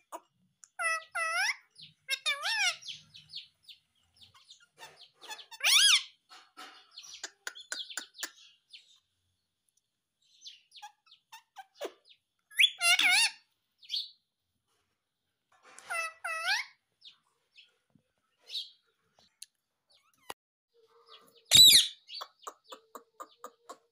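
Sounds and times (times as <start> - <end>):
parakeet clicks and chirps: 6.8 - 8.6, 21.5 - 23.9
parakeet wavering call: 21.5 - 22.2.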